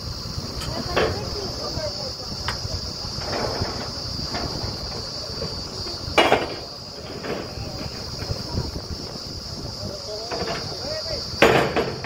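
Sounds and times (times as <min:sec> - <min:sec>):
drilling rig rumbling: 0:00.0 - 0:12.0
metal clanks of drill pipe: 0:02.4 - 0:08.8, 0:10.2 - 0:12.0.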